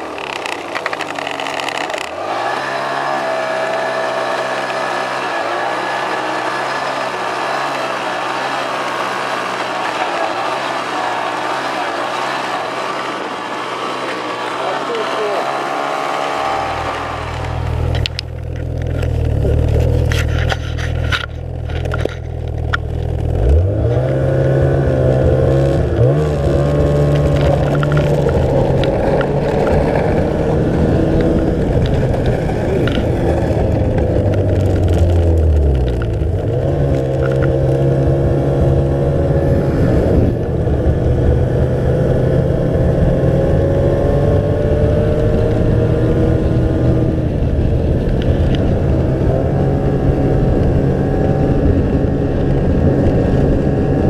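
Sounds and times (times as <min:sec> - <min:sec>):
sled scraping and clattering: 0:00.0 - 0:24.2, 0:25.6 - 0:38.7
snowmobile engine revving: 0:00.0 - 0:54.0.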